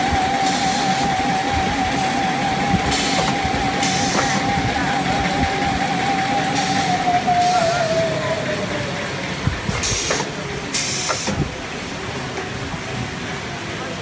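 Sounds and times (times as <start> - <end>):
factory hum: 0.0 - 14.0
compressed-air hiss: 0.4 - 1.1, 2.9 - 4.4, 9.7 - 11.5.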